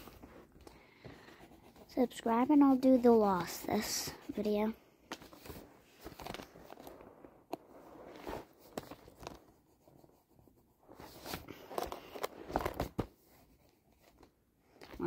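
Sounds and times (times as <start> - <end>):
pencil scratching on paper: 1.0 - 4.7
paper rustling and light knocks: 5.1 - 7.0.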